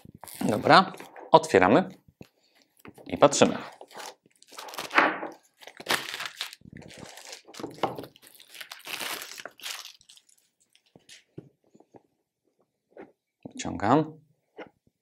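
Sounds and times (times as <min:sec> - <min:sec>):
packaging rustling and crinkling: 0:00.0 - 0:01.3, 0:02.6 - 0:11.2.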